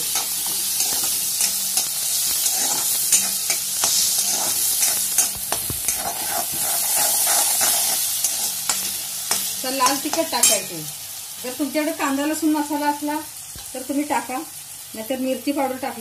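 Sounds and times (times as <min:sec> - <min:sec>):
spatula scraping pan: 0:00.0 - 0:10.7
food sizzling in hot oil: 0:00.0 - 0:16.0.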